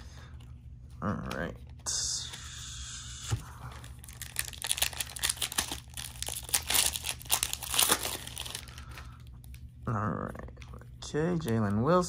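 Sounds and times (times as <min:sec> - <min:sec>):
card pack wrapper crinkling and tearing: 0:03.7 - 0:09.6.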